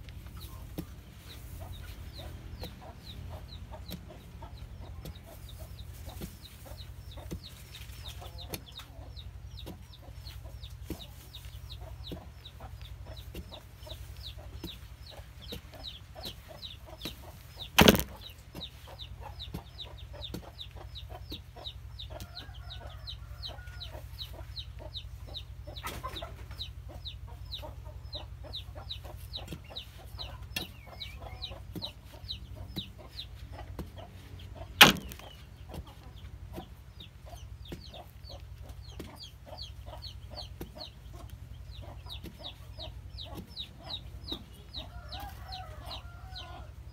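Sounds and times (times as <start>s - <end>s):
chickens clucking and peeping: 0.0s - 46.9s
digging bar scraping soil: 17.8s - 18.2s, 34.8s - 35.4s
sharp loud knocks: 17.8s - 18.2s, 34.8s - 35.3s.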